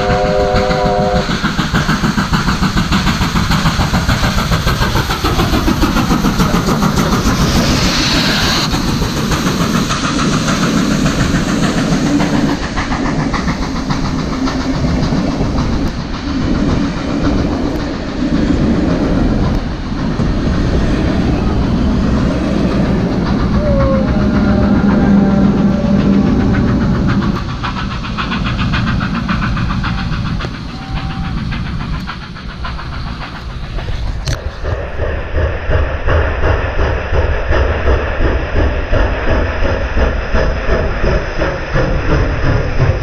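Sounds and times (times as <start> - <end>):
steam hiss: 0.0 - 43.0
steam locomotive exhaust beating: 0.0 - 43.0
carriages rumbling past: 20.2 - 27.7.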